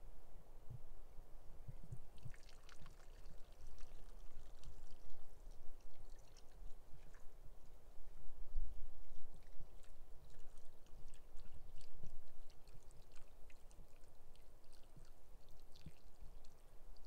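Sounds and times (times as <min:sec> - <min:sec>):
wet squelches: 0:02.1 - 0:07.8, 0:09.1 - 0:17.0.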